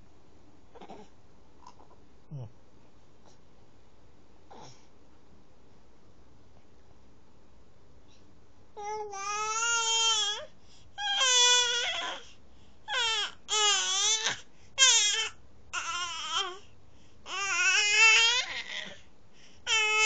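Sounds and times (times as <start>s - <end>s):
baby crying: 8.8s - 12.2s, 12.9s - 16.6s, 17.3s - 19.0s, 19.7s - 20.0s.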